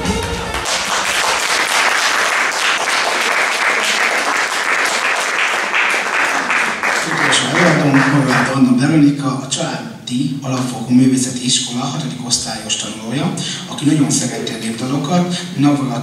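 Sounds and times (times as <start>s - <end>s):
music: 0.0s - 1.8s
audience applauding: 0.0s - 8.7s.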